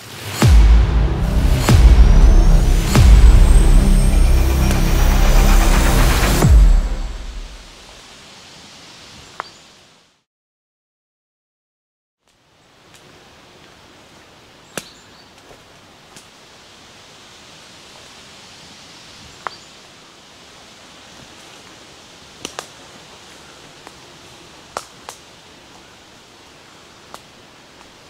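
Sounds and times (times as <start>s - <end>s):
rustling forest ambience: 0.0s - 10.3s, 12.2s - 28.0s
twigs snapping underfoot: 22.4s - 22.8s, 24.7s - 25.3s, 27.1s - 28.0s.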